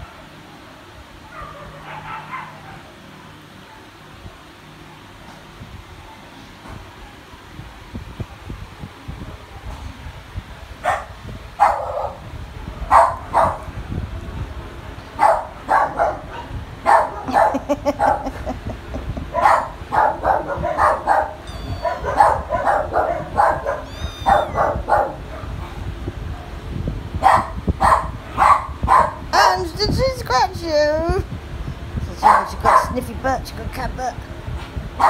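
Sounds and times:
dog barking: 0:01.2 - 0:02.9, 0:10.8 - 0:12.2, 0:12.9 - 0:13.7, 0:15.2 - 0:18.4, 0:19.3 - 0:25.8, 0:27.2 - 0:29.2, 0:32.2 - 0:33.0.

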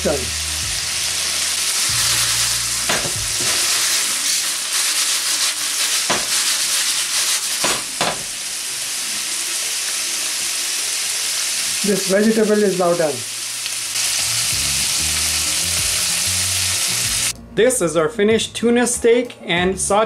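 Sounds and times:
vegetables sizzling in hot oil: 0:00.0 - 0:17.3
vegetables clattering in pan: 0:02.9 - 0:04.0, 0:05.4 - 0:06.8.

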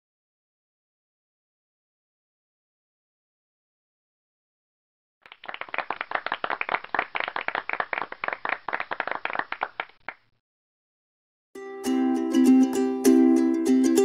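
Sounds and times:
applause: 0:05.2 - 0:10.3
music: 0:11.6 - 0:14.0.

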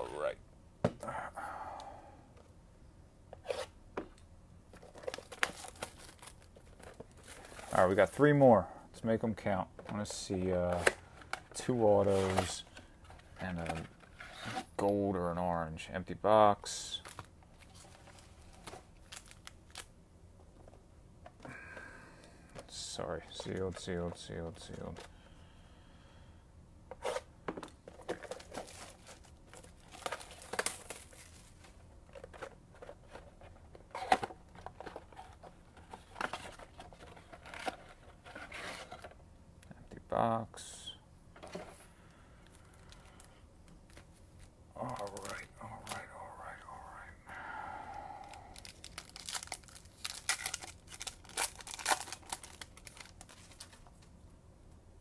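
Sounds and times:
card pack wrapper tearing: 0:48.2 - 0:53.8.

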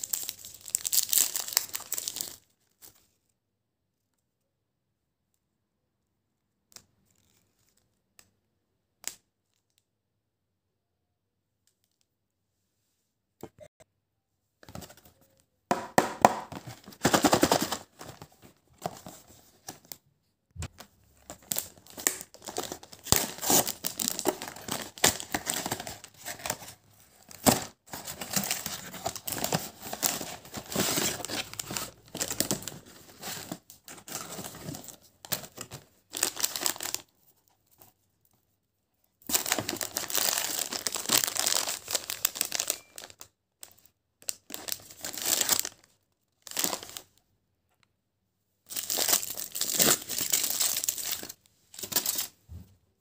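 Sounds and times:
plastic wrapper crinkling: 0:00.0 - 0:02.9, 0:20.7 - 0:37.1, 0:39.2 - 0:47.2, 0:48.7 - 0:52.3.

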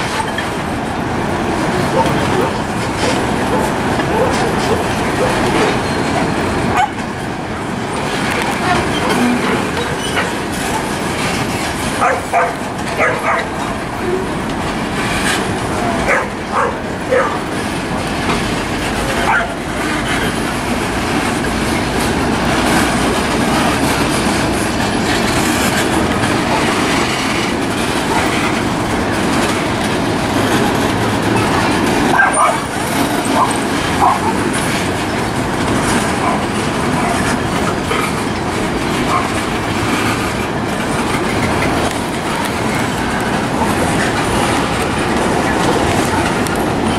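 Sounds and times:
freight train rumbling past: 0:00.0 - 0:46.9
wheels clattering over rail joints: 0:00.0 - 0:46.9.

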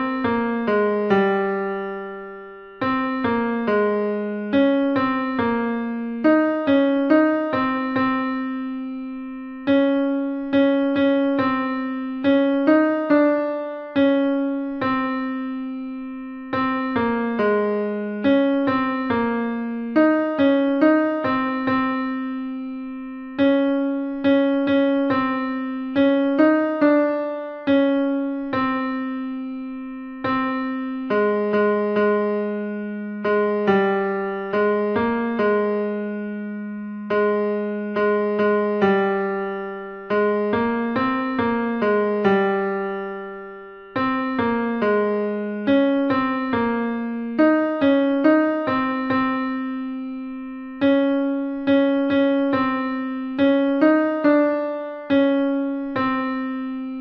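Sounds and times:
piano notes: 0:00.0 - 0:57.0.

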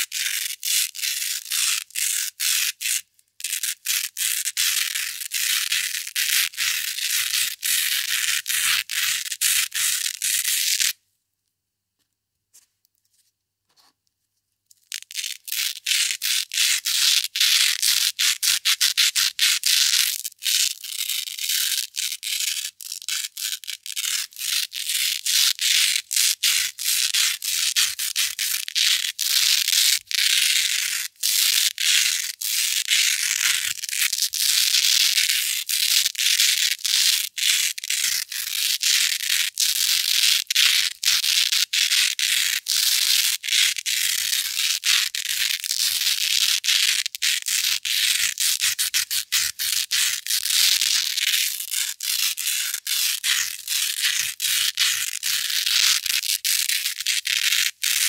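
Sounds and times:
velcro tape scratching: 0:00.0 - 0:11.0, 0:14.8 - 0:58.0.

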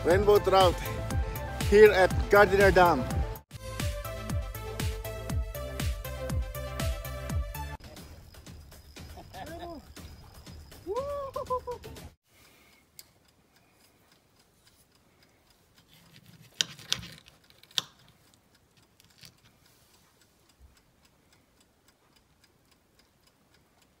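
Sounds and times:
faint light ticks: 0:12.4 - 0:24.0.

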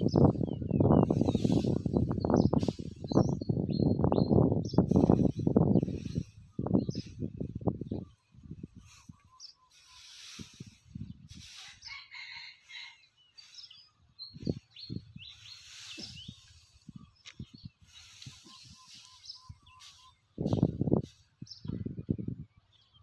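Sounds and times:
small birds chirping: 0:00.0 - 0:23.0
dry straw rustling: 0:01.0 - 0:03.4, 0:04.9 - 0:21.5
rooster crowing: 0:11.9 - 0:13.0.

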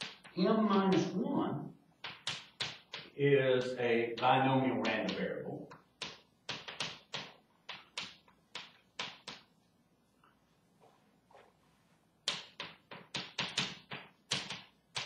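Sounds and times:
chalk tapping and scratching: 0:00.0 - 0:01.1, 0:02.0 - 0:09.5, 0:12.2 - 0:15.0.

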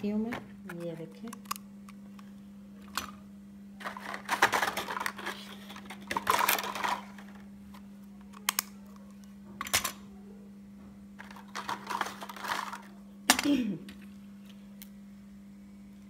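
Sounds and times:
steady low hum: 0:00.0 - 0:16.0
rustling and scraping: 0:03.8 - 0:07.4.

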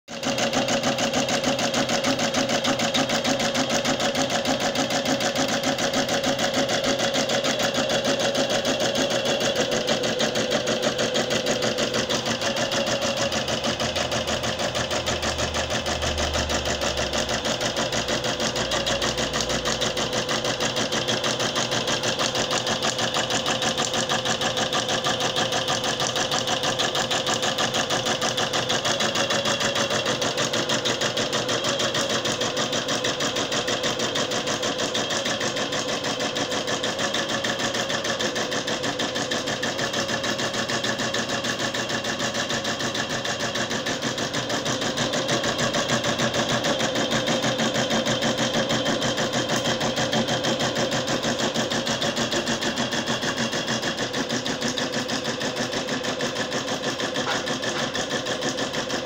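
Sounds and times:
embroidery machine stitching: 0:00.1 - 0:59.0.

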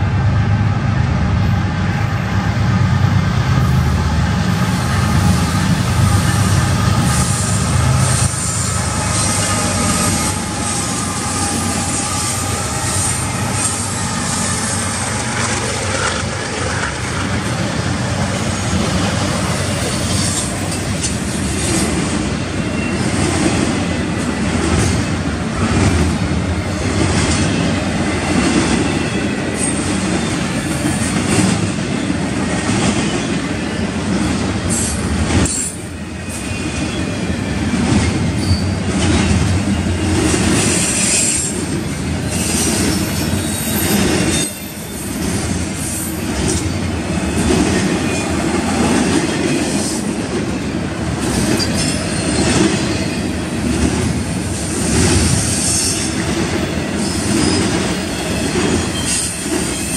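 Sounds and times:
diesel locomotives passing: 0:00.0 - 0:59.9
rumble of wheels on rail: 0:00.0 - 0:59.9
high wheel squeal: 0:04.6 - 0:17.3, 0:38.4 - 0:38.9, 0:42.2 - 0:48.4, 0:51.4 - 0:53.4, 0:56.8 - 0:59.9
clicks of wheels on rail joints: 0:14.4 - 0:17.6.

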